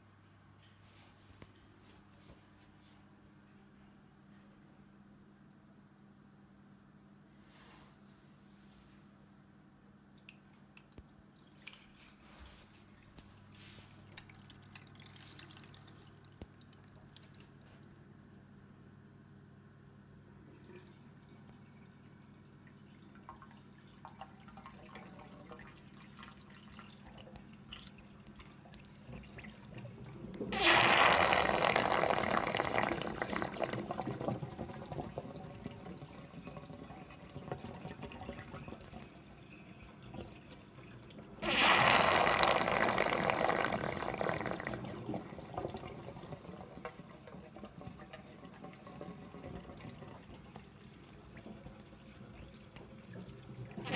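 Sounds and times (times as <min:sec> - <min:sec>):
water trickling and dripping: 0:10.1 - 0:30.6, 0:32.6 - 0:41.4, 0:44.6 - 0:53.9.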